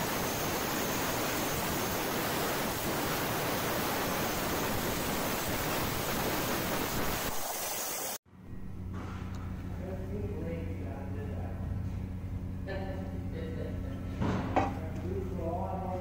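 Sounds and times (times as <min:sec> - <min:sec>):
plasma cutter arc hissing: 0:00.0 - 0:08.2.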